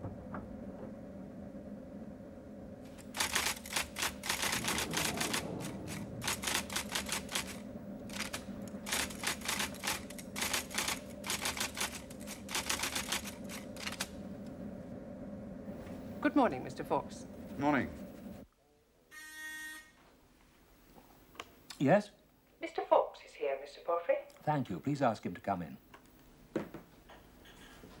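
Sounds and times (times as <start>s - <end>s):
low steady hum: 0.0s - 28.0s
rapid typing on a keyboard: 3.0s - 14.1s.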